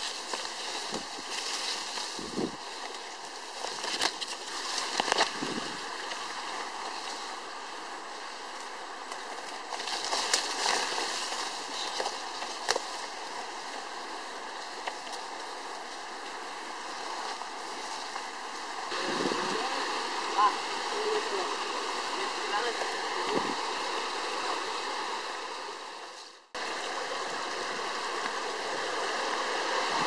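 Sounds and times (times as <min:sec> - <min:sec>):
leaves and brush rustling: 0:00.0 - 0:30.0
leaves brushing camera: 0:08.6 - 0:16.3.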